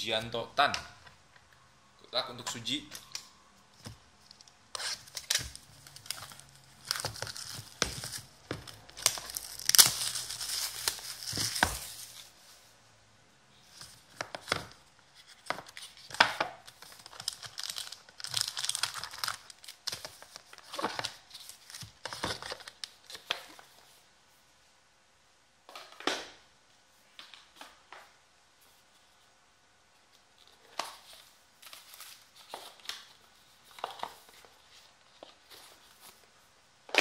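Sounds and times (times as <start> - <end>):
plastic wrap crinkling and tearing: 4.2 - 12.4, 13.9 - 23.4.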